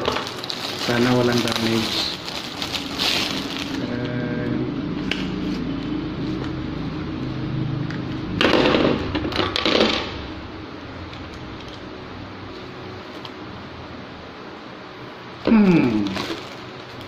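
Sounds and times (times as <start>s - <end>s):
plastic wrapping crinkling: 0.0s - 4.0s, 15.9s - 17.0s
low mechanical hum: 0.0s - 17.0s.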